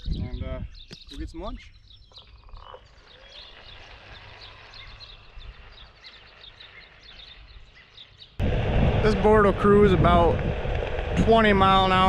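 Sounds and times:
small birds chirping: 0.0s - 8.4s
low steady rumble: 8.4s - 12.0s.

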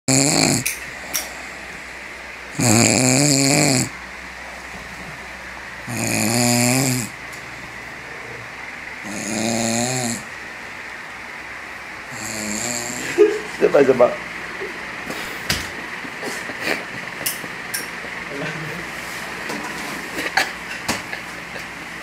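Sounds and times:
person snoring: 0.1s - 1.9s, 2.5s - 3.9s, 5.8s - 7.2s, 9.0s - 10.3s, 12.1s - 13.2s.

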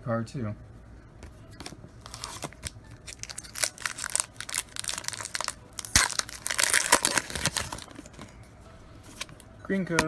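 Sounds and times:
foil wrapper crinkling and tearing: 2.0s - 8.1s.

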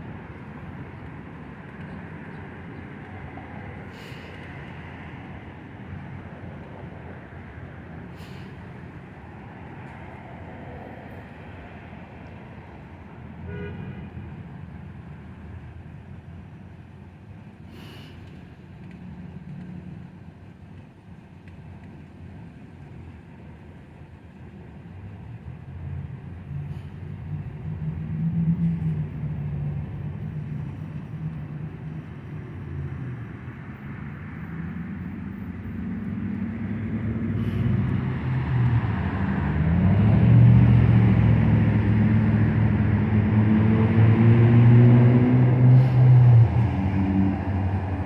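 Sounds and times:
car engines passing: 0.0s - 48.0s
louder vehicle engine approaching: 26.0s - 48.0s.

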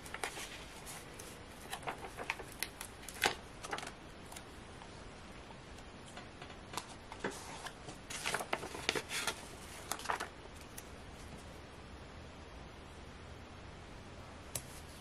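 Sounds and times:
sticker sheet rustling and crinkling: 0.0s - 4.5s, 6.1s - 11.4s.

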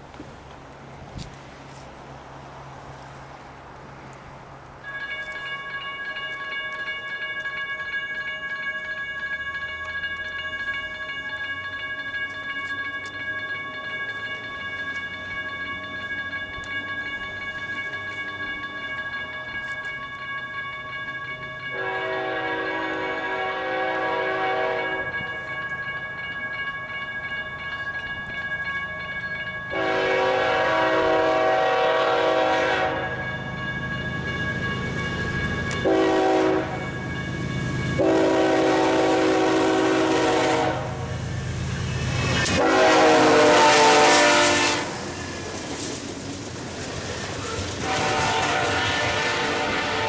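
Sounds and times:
train engine and wheel noise: 0.0s - 50.0s
locomotive air horn: 21.7s - 25.1s, 29.7s - 33.2s, 35.8s - 36.9s, 38.0s - 41.1s, 42.5s - 45.0s, 47.8s - 50.0s.

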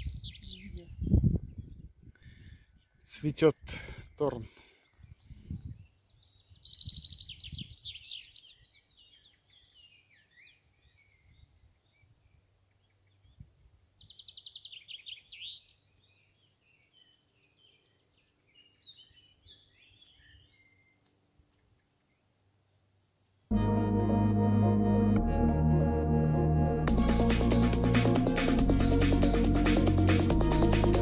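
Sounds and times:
nightingale singing: 0.0s - 1.9s, 4.9s - 23.5s.

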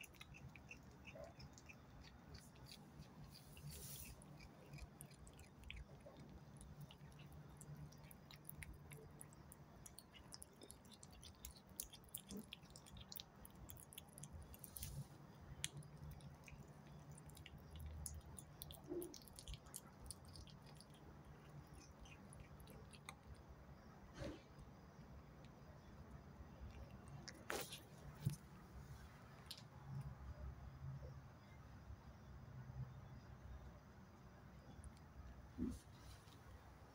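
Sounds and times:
kitten chewing raw meat: 0.0s - 23.7s, 25.0s - 28.7s.

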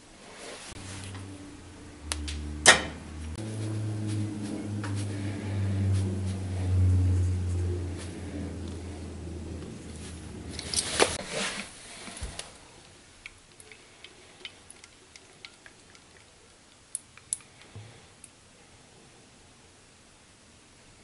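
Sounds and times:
low hum: 0.7s - 11.2s
light clicks and taps in metal cup: 13.2s - 18.3s.

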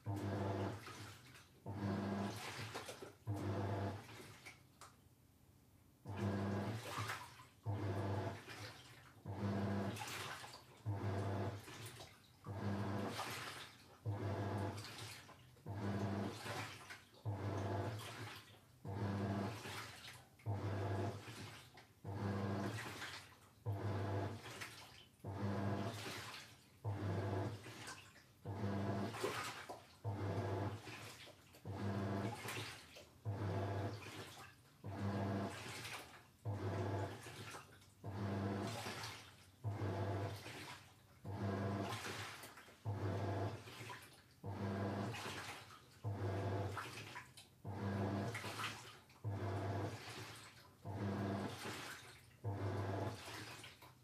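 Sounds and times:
washing machine motor humming: 0.0s - 1.0s, 1.6s - 2.5s, 3.3s - 4.1s, 6.0s - 7.0s, 7.6s - 8.6s, 9.2s - 10.2s, 10.8s - 11.8s, 12.4s - 16.5s, 17.2s - 18.1s, 18.8s - 19.7s, 20.5s - 21.4s, 22.0s - 24.6s, 25.2s - 26.1s, 26.8s - 27.8s, 28.4s - 29.4s, 30.0s - 32.6s, 33.2s - 34.2s, 34.8s - 37.4s, 38.0s - 43.8s, 44.4s - 45.4s, 46.0s - 46.9s, 47.6s - 48.5s, 49.2s - 50.2s, 50.8s - 53.4s
water sloshing in tub: 0.0s - 5.1s, 6.0s - 54.0s.

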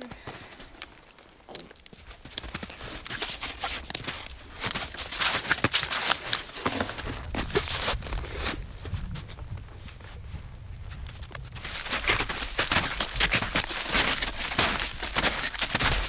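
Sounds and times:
clicks and rustles of bindings: 0.2s - 9.6s
boots crunching in snow: 2.4s - 9.3s, 10.9s - 16.0s.

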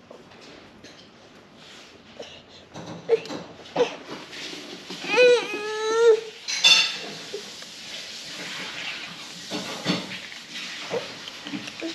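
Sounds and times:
toddler vocalizing: 5.0s - 6.3s.

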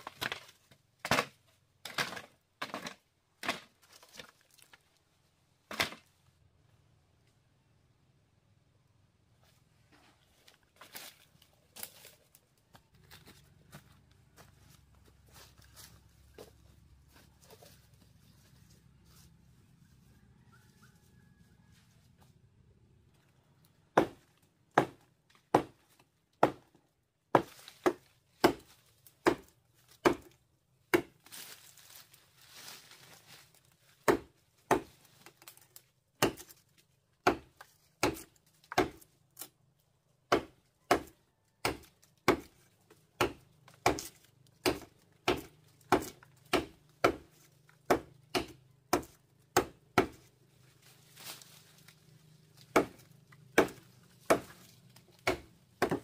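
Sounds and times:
rustling: 31.3s - 34.0s, 50.4s - 52.7s.

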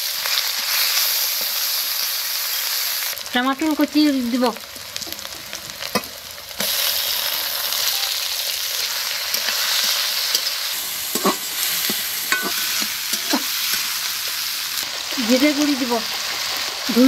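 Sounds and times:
vegetables sizzling in hot oil: 0.0s - 17.0s
metal spatula scraping pan: 9.3s - 14.0s.

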